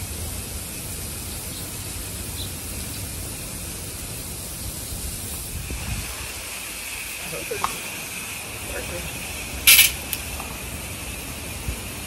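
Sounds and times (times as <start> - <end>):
hose sprayer hissing: 0.0 - 12.0.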